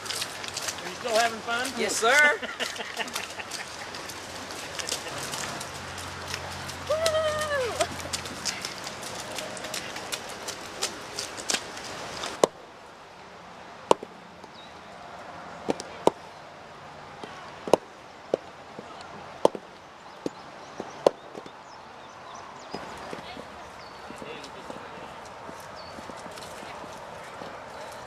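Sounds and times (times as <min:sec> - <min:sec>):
quick patter of clicks: 0:00.0 - 0:12.5.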